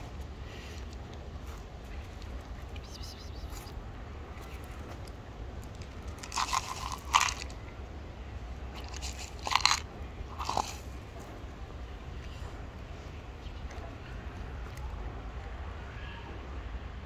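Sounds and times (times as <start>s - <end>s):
dry kibble crunching: 0.0s - 7.8s, 8.6s - 11.6s.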